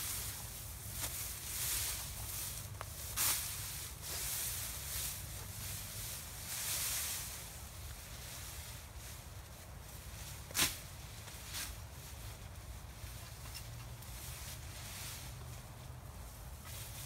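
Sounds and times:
grass rustling: 0:00.0 - 0:17.0
machete cutting long grass: 0:10.5 - 0:11.8.

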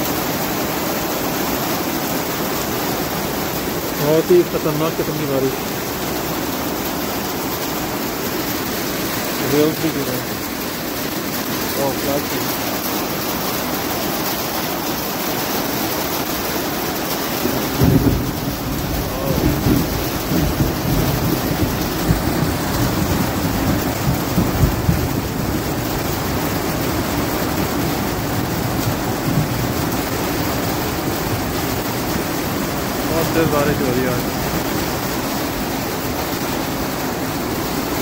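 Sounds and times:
heavy rain on pavement: 0:00.0 - 0:38.0
low rumbling: 0:17.4 - 0:34.8.

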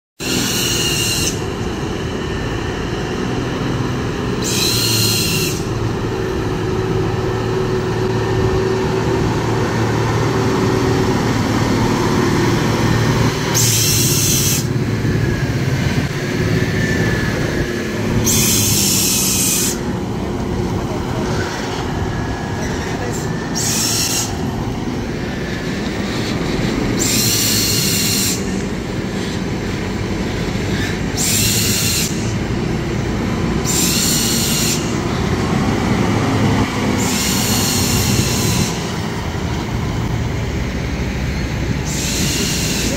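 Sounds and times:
air brakes hissing: 0:00.2 - 0:01.6, 0:04.4 - 0:05.9, 0:13.5 - 0:14.7, 0:18.2 - 0:19.9, 0:23.4 - 0:24.4, 0:27.0 - 0:29.4, 0:30.7 - 0:32.4, 0:33.6 - 0:35.0, 0:37.0 - 0:39.0, 0:41.8 - 0:42.9
truck diesel engine droning: 0:00.2 - 0:42.9.

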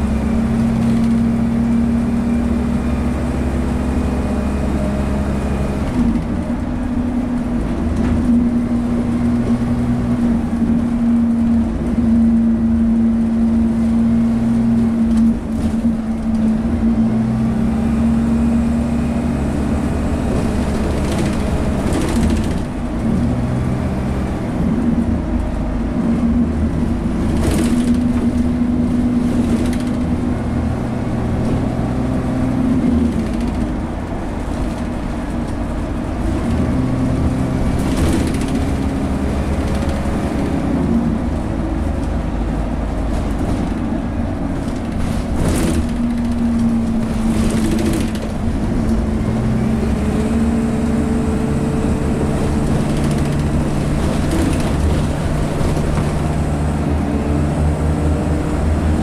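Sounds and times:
bus diesel engine drone: 0:00.0 - 0:59.0
knocks and rattles: 0:27.2 - 0:30.2, 0:37.7 - 0:40.1, 0:44.6 - 0:49.0, 0:52.4 - 0:56.5.

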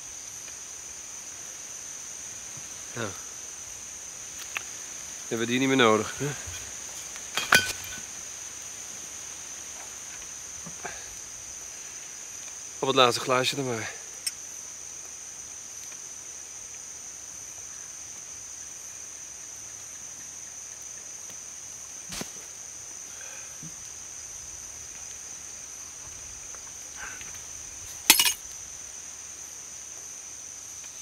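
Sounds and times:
crickets chirping: 0:00.0 - 0:31.0
glass bottle landing in undergrowth: 0:07.3 - 0:08.1, 0:28.0 - 0:28.4
glasses clinking: 0:07.4 - 0:08.0, 0:28.1 - 0:28.4.

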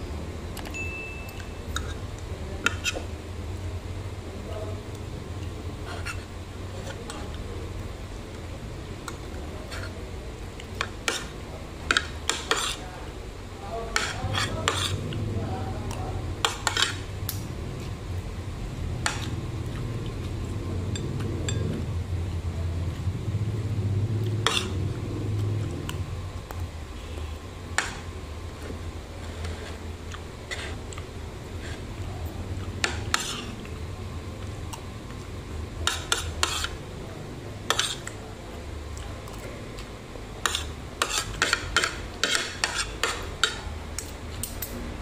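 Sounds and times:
cutlery clinking against a dish: 0:16.4 - 0:17.0, 0:21.0 - 0:21.8, 0:24.3 - 0:24.8, 0:37.7 - 0:38.2, 0:40.4 - 0:44.8.

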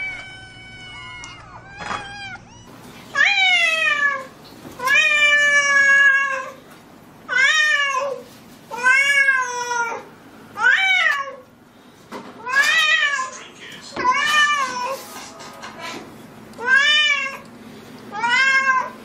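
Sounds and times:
cat meowing loudly: 0:00.0 - 0:06.6, 0:18.1 - 0:19.0.

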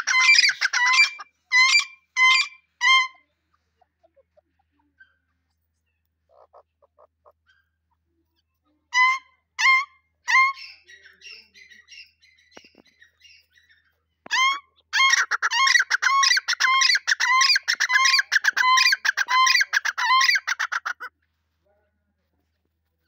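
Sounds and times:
francolins calling: 0:09.0 - 0:21.0.

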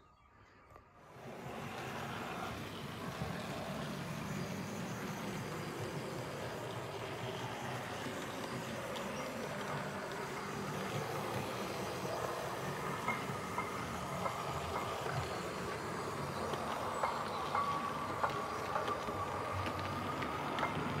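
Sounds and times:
model train motor whirr: 0:01.0 - 0:21.0
wheel clicks over rail joints: 0:01.2 - 0:21.0.

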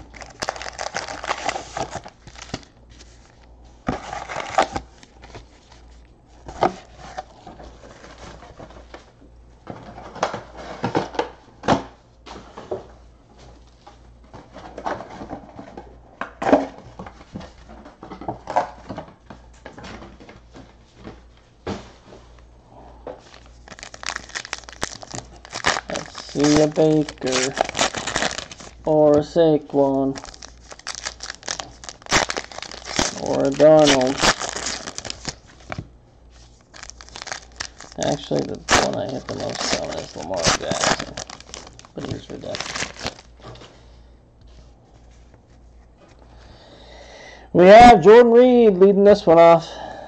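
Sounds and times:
card packs rustling and crinkling: 0:00.0 - 0:11.2, 0:23.1 - 0:43.9.

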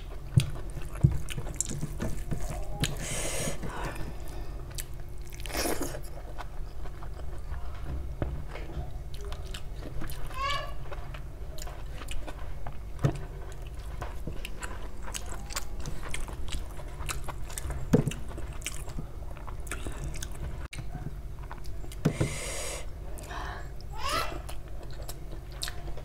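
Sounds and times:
close chewing food: 0:00.0 - 0:26.0.

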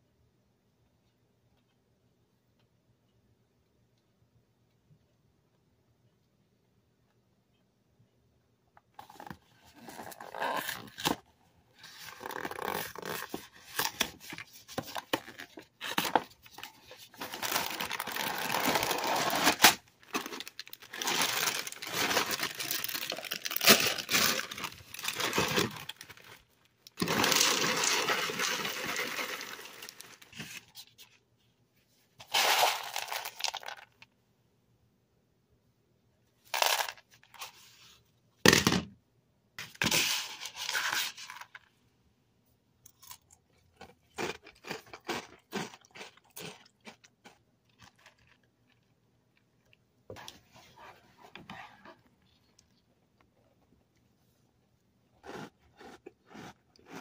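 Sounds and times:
plastic bag crinkling and tearing: 0:11.9 - 0:30.8, 0:32.2 - 0:34.0
cereal pouring into bowl: 0:27.0 - 0:30.3, 0:32.2 - 0:34.0, 0:36.5 - 0:37.0.

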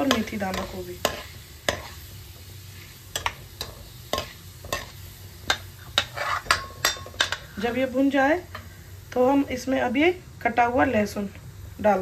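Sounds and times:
utensil scraping a pan: 0:00.0 - 0:07.8
seeds sizzling in hot oil: 0:00.0 - 0:12.0.

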